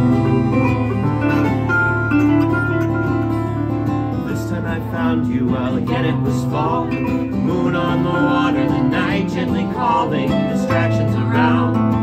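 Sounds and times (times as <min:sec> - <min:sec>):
harp playing: 0:00.0 - 0:04.3
wavering melody line: 0:00.0 - 0:04.6
acoustic guitar: 0:00.0 - 0:12.0.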